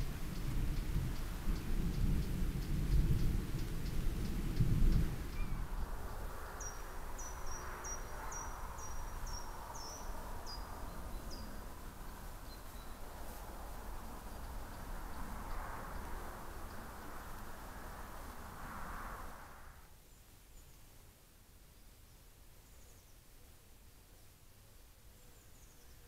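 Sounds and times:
rain falling: 0:00.0 - 0:05.3.

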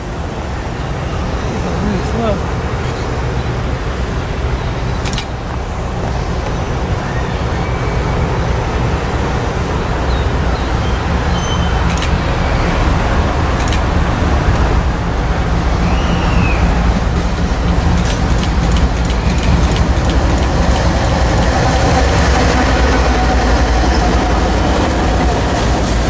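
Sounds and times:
diesel locomotive rumble: 0:00.0 - 0:26.0
sharp clicks: 0:05.0 - 0:05.4, 0:11.8 - 0:12.2, 0:13.6 - 0:13.9, 0:17.9 - 0:22.6.

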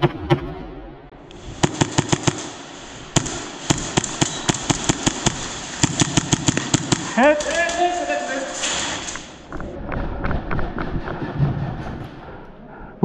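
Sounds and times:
airsoft gun shots: 0:01.6 - 0:02.6, 0:03.2 - 0:07.4.

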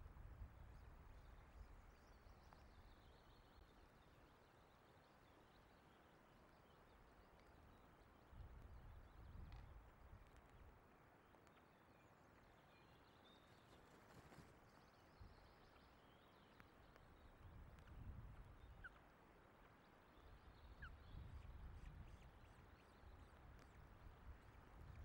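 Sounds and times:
wind buffeting microphone: 0:17.4 - 0:18.7.

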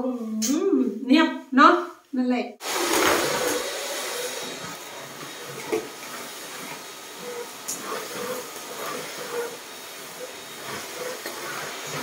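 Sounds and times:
vacuum cleaner running: 0:02.6 - 0:12.0.

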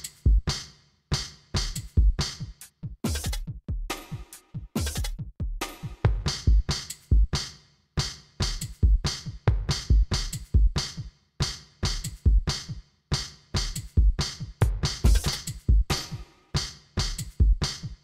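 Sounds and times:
electronic music with drum machine: 0:01.6 - 0:07.5, 0:08.4 - 0:18.0
heavy bass drum thumps: 0:04.8 - 0:07.3, 0:08.8 - 0:10.8, 0:13.6 - 0:16.0.

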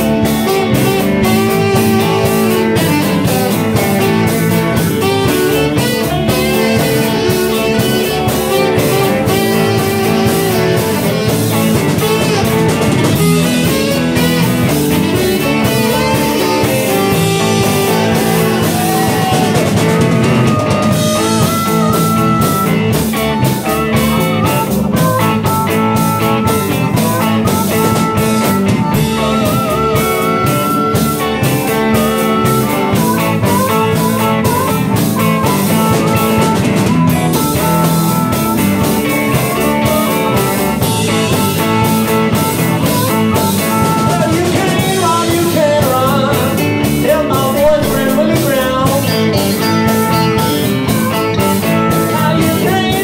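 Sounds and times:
bass guitar: 0:00.0 - 0:53.0
drum kit: 0:00.0 - 0:53.0
electric guitar: 0:00.0 - 0:53.0
harmonica: 0:00.0 - 0:53.0
saxophone: 0:00.0 - 0:53.0.

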